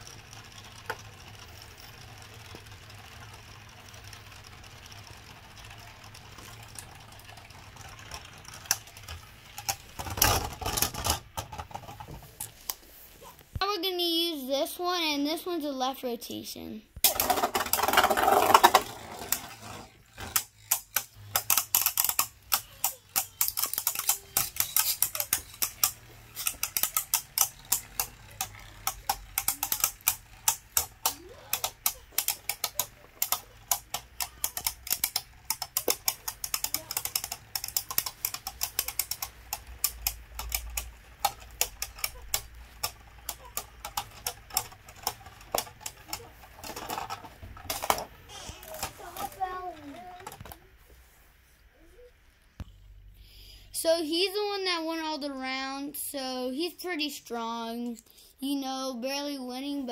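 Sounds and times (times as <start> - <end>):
spinning tops clattering: 0.0 - 12.7, 17.0 - 50.4.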